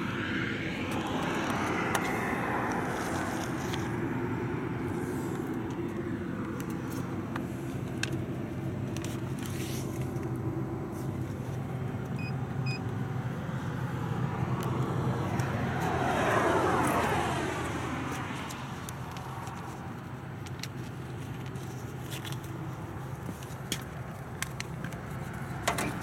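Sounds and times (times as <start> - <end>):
car passing by: 0.0 - 5.6, 14.2 - 18.8.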